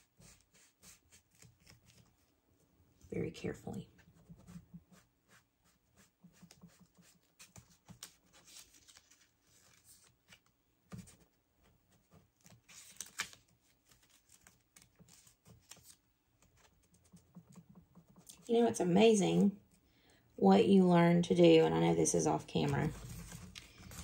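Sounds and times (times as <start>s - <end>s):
paper rustling: 0.2s - 2.3s, 6.0s - 18.5s, 22.6s - 24.0s.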